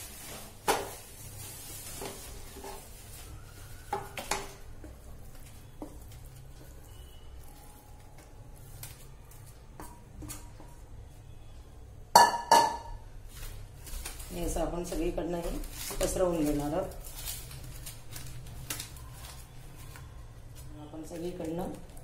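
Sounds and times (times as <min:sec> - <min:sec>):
spatula scraping frying pan: 0:01.7 - 0:03.1.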